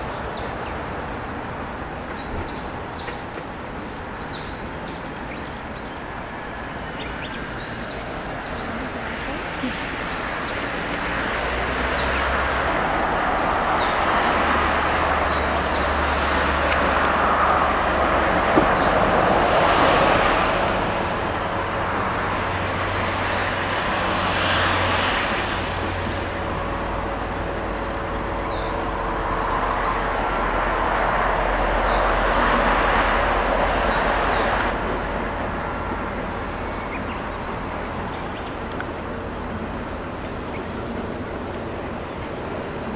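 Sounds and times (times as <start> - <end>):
bird chirping: 0.0 - 0.8, 2.1 - 6.2, 6.8 - 14.0, 15.0 - 16.0, 27.7 - 30.0
distant vehicle noise: 0.0 - 42.9.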